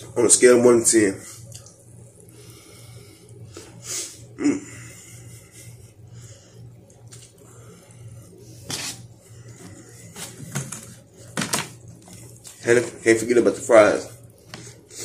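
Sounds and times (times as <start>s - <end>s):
steady low hum: 0.0s - 15.0s
man chewing food: 1.4s - 4.1s, 4.8s - 12.6s, 14.2s - 15.0s.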